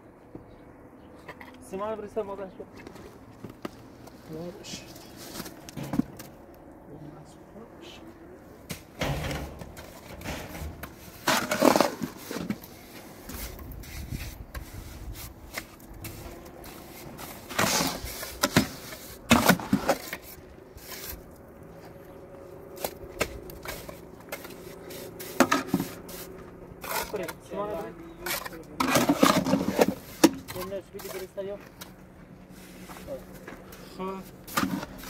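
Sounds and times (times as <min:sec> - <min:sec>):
tools scraping and knocking: 0:05.7 - 0:06.4, 0:08.7 - 0:12.7.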